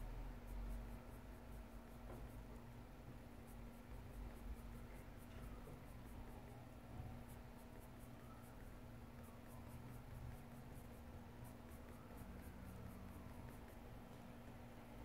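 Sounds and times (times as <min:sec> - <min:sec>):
pencil scratching on paper: 0:00.3 - 0:14.1.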